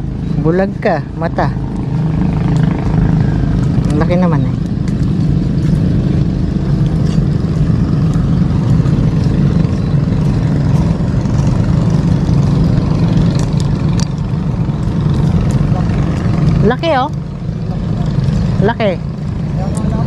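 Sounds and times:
motor droning: 0:00.0 - 0:20.0.

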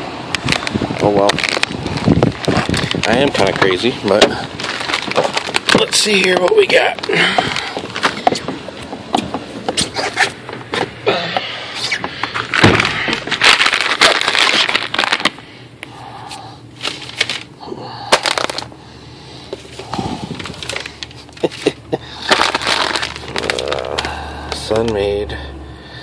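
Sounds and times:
plastic bag crinkling: 0:00.4 - 0:08.5, 0:11.8 - 0:15.4, 0:16.8 - 0:17.5, 0:18.1 - 0:18.7, 0:19.6 - 0:25.0.

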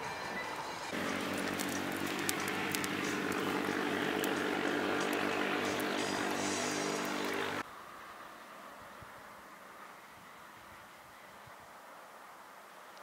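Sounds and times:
campfire crackling: 0:00.9 - 0:07.6
low motor-like drone: 0:00.9 - 0:07.6.

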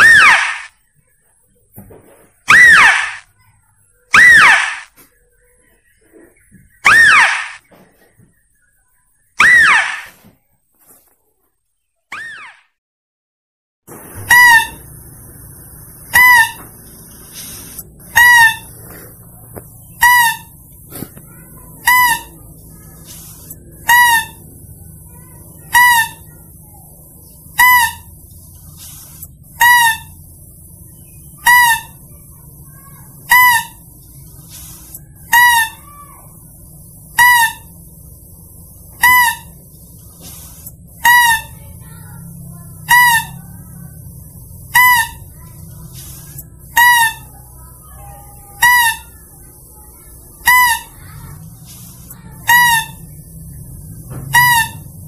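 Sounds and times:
high-pitched animal lure call: 0:00.0 - 0:00.7, 0:02.5 - 0:03.3, 0:04.1 - 0:04.9, 0:06.8 - 0:07.6, 0:09.4 - 0:10.1, 0:16.1 - 0:19.0, 0:19.7 - 0:51.3, 0:52.0 - 0:53.5, 0:54.3 - 0:55.0.

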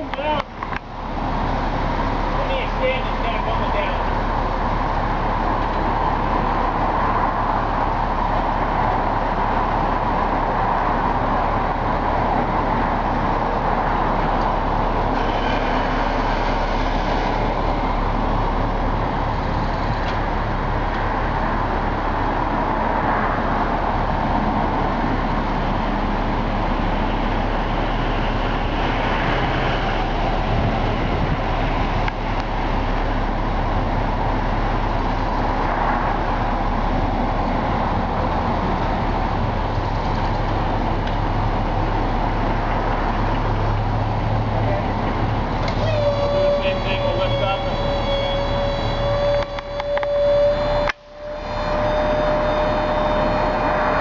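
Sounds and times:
engine running with steady drone: 0:00.0 - 0:54.0.

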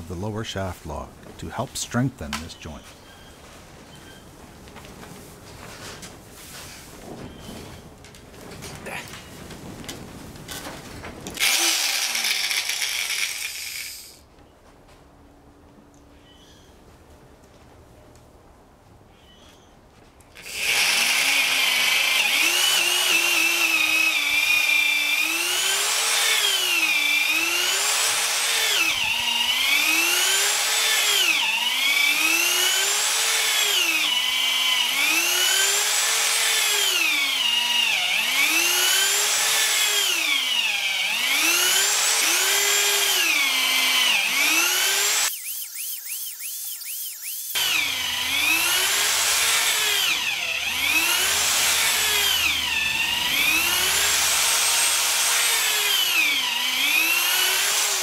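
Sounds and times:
electric drill boring into wood: 0:11.4 - 0:14.2, 0:20.4 - 0:58.0.

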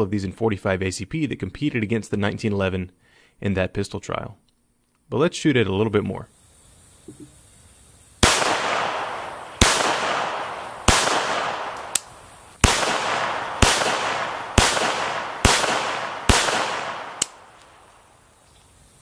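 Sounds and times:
pistol shots with echo: 0:08.2 - 0:18.0
faint sharp cracks: 0:08.2 - 0:18.8.

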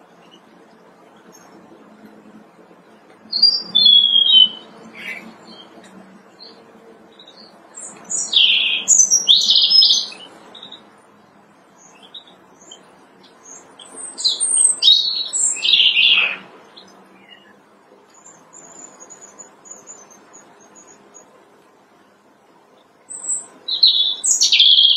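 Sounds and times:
faint high twittering: 0:00.0 - 0:24.9
robin singing: 0:03.2 - 0:10.9, 0:11.7 - 0:21.3, 0:22.8 - 0:24.9.

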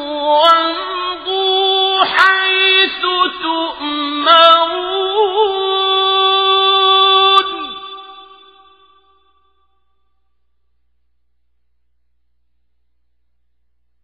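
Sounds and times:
man reciting melodically: 0:00.0 - 0:08.5.

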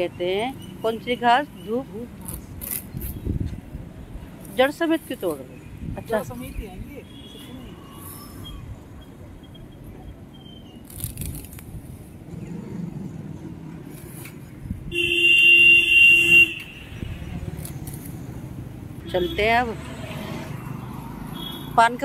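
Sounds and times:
low traffic rumble: 0:00.0 - 0:22.0
vehicle horn honking: 0:14.9 - 0:17.1.

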